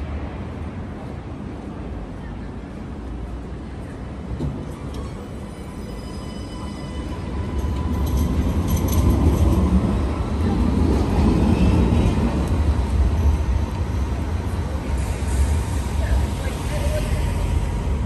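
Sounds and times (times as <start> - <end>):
tram rumbling past: 0.0 - 18.0.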